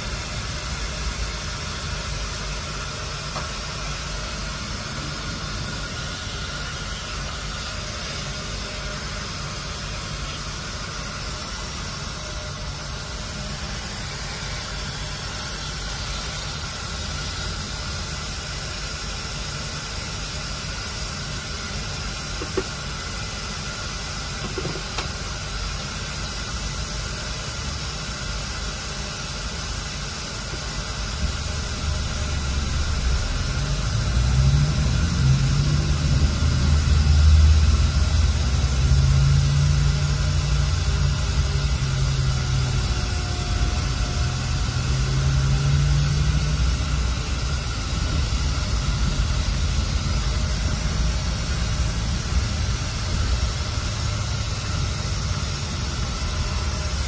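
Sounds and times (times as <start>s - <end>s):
air conditioning blowing: 0.0s - 57.0s
low rumble of bus: 0.0s - 57.0s.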